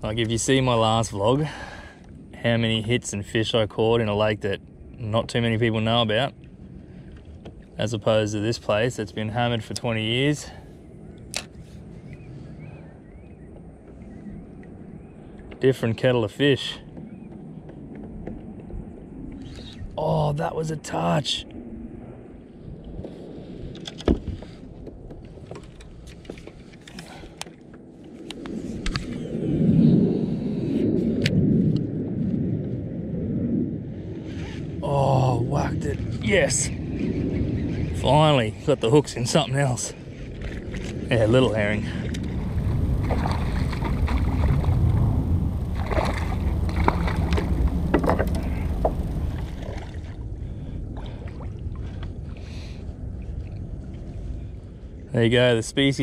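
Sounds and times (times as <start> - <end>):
steady low rumble: 0.0 - 56.0
water sloshing against kayak hull: 39.0 - 54.6
fish splashing at surface: 45.6 - 50.2.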